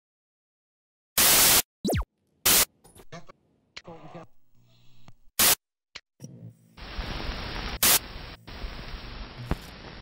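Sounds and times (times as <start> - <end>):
static hiss: 1.2 - 1.6, 6.8 - 10.0
white noise bursts: 6.8 - 10.0.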